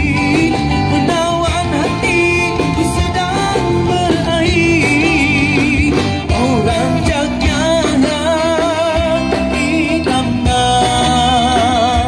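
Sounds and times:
acoustic-electric guitar: 0.0 - 12.0
man singing with vibrato: 0.0 - 12.0.

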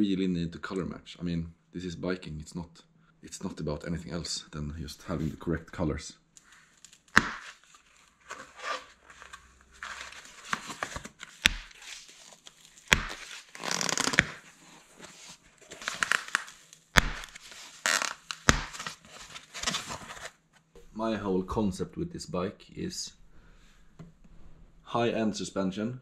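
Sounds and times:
foam and tape rustling and tearing: 6.5 - 20.4.

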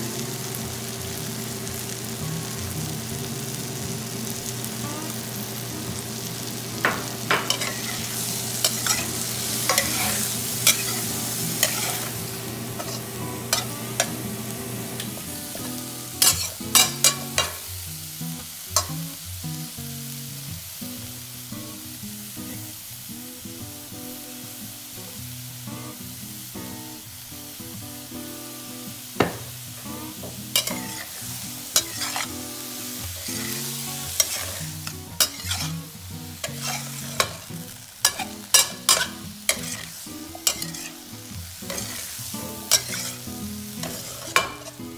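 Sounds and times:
vegetables sizzling in oil: 0.0 - 44.9
metal spoon clinking on pan: 6.8 - 8.0, 8.6 - 11.0, 16.2 - 17.6, 30.6 - 31.1, 34.2 - 35.7, 36.6 - 37.4, 38.0 - 39.8, 40.4 - 40.9, 42.7 - 43.2, 43.8 - 44.7
spoon clanking: 6.8 - 12.1, 16.2 - 17.6, 30.6 - 31.1, 34.2 - 35.7, 36.5 - 37.4, 38.1 - 39.8, 40.4 - 40.9, 42.7 - 43.2, 43.8 - 44.7.

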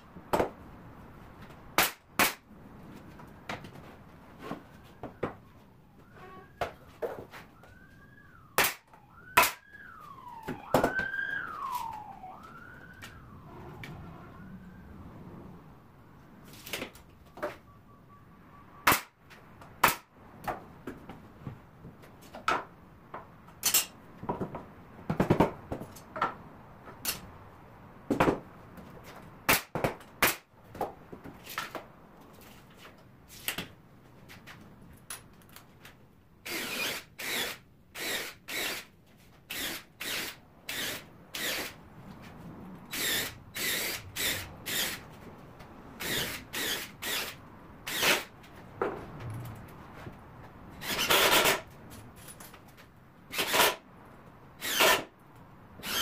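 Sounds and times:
nail gun firing into wood: 1.8 - 2.4, 8.6 - 9.6, 18.8 - 19.1, 19.8 - 20.1, 29.5 - 30.5, 53.3 - 53.8, 54.6 - 55.1.

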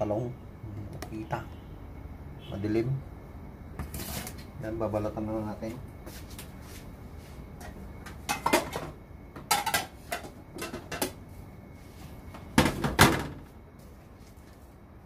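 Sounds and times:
kitchenware clattering: 8.3 - 11.1.

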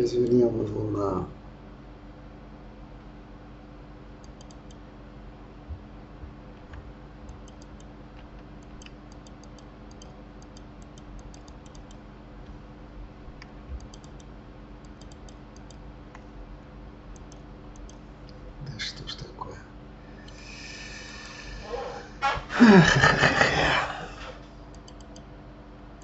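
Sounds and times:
low computer hum: 0.0 - 26.0
mouse and keyboard clicks: 4.2 - 4.8, 7.3 - 12.0, 13.8 - 15.8.

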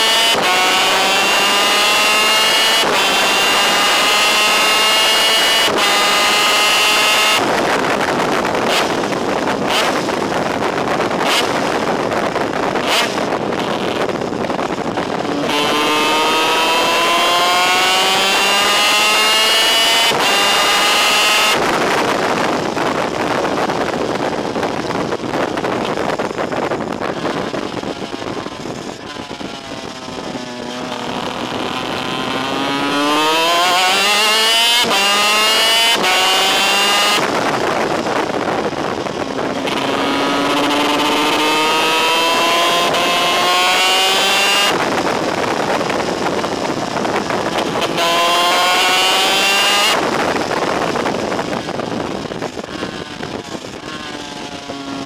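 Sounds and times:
kart engine at full throttle: 0.0 - 55.0
wind rushing over microphone: 0.0 - 55.0.

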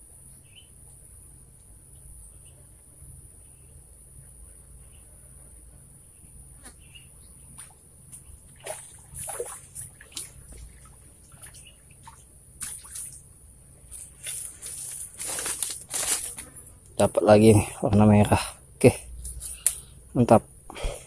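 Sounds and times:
fish splashing at water surface: 8.6 - 13.3.

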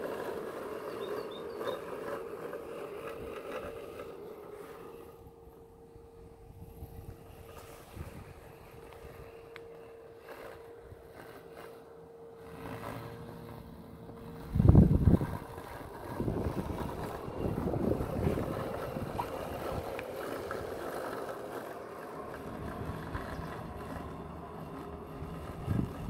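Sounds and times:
robotic lawn mower humming: 0.0 - 26.0
wind buffeting microphone: 5.0 - 9.5, 14.1 - 21.0, 22.3 - 26.0.

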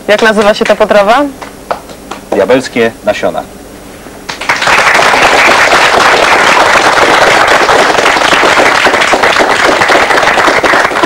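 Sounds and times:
audience applauding: 4.3 - 11.0.

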